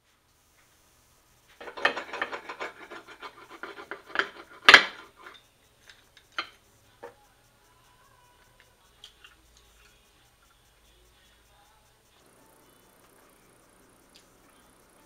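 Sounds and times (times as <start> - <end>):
pizza cutter scraping: 1.6 - 5.3
metal clacks on tray: 1.6 - 6.6.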